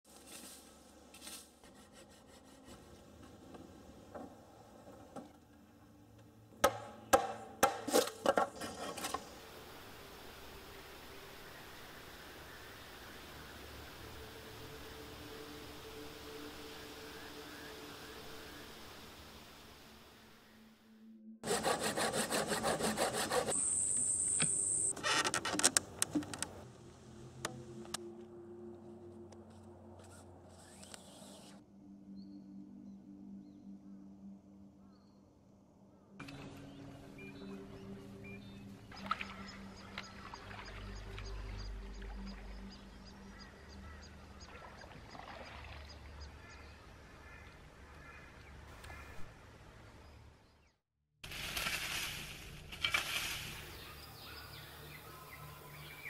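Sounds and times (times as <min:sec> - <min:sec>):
bamboo poles knocking: 0:06.6 - 0:08.5
hand saw cutting wood: 0:21.4 - 0:23.7
high-pitched whine: 0:23.4 - 0:24.9
scraping and rustling: 0:51.2 - 0:53.7.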